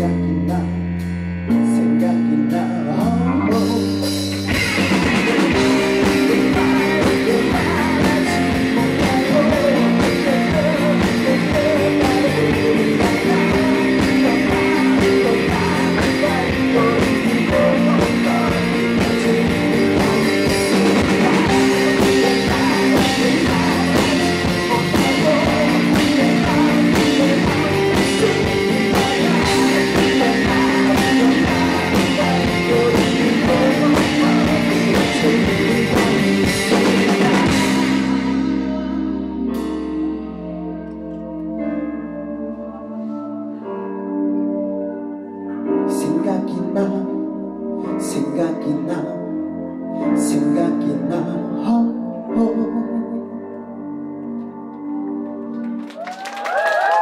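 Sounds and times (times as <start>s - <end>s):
man singing: 0.0s - 39.4s, 45.9s - 53.7s
electric guitar: 0.0s - 57.0s
drum kit beat: 3.7s - 39.0s.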